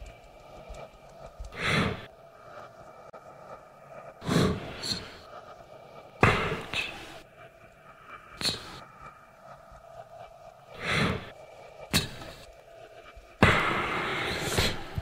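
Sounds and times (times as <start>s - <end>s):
faint room hum: 0.0s - 15.0s
group exhaling audibly: 4.2s - 5.3s, 10.8s - 11.3s, 11.9s - 12.5s, 13.4s - 15.0s.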